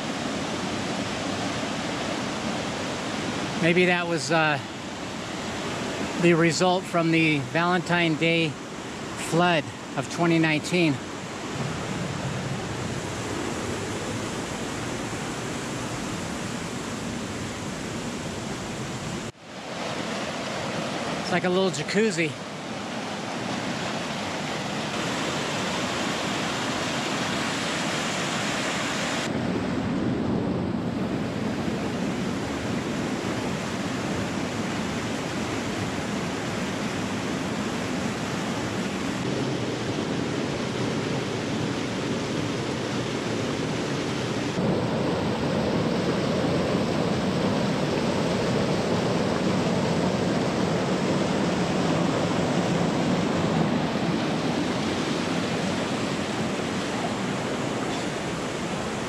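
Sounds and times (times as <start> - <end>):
creek rushing over rocks: 0.0 - 29.3.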